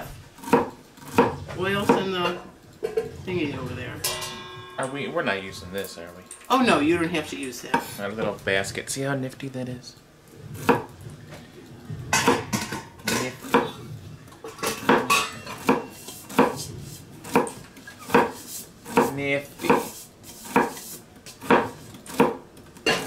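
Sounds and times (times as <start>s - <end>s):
knife chopping on wooden board: 0.0s - 2.1s, 14.8s - 22.4s.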